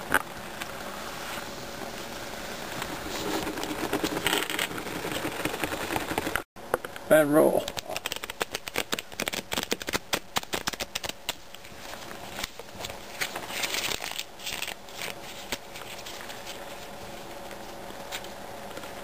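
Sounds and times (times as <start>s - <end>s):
playing cards riffle shuffling: 2.7s - 6.5s, 7.6s - 19.0s
cards rustling: 2.8s - 6.5s, 7.6s - 18.9s.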